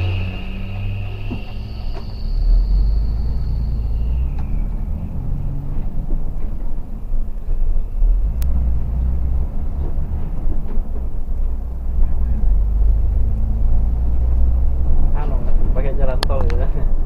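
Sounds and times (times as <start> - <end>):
faint high tone: 0.0 - 4.8
coach engine and road rumble: 0.0 - 17.0.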